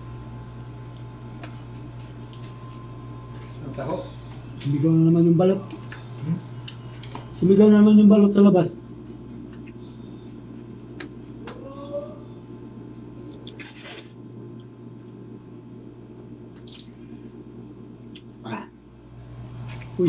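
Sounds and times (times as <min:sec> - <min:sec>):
steady low hum: 0:00.0 - 0:20.0
wet eating sounds: 0:13.2 - 0:14.6, 0:16.5 - 0:20.0
wet slurp: 0:13.3 - 0:14.2, 0:16.6 - 0:17.1.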